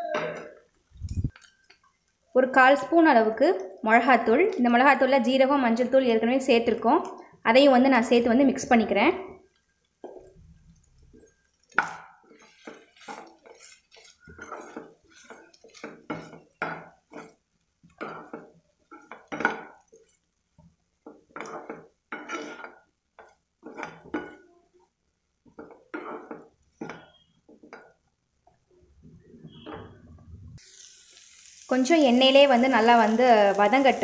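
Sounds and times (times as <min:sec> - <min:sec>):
spatula scraping frying pan: 0:11.0 - 0:24.6, 0:25.5 - 0:28.0.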